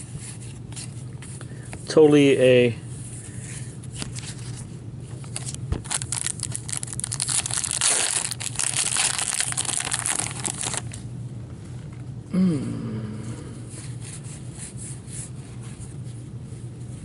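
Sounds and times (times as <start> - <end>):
wrapper crinkling and tearing: 5.2 - 11.0.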